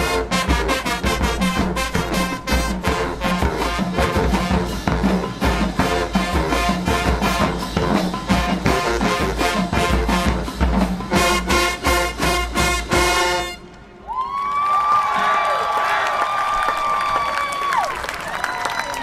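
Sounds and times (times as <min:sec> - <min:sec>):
drumline beat: 0:00.0 - 0:13.5
brass section playing: 0:00.0 - 0:14.0.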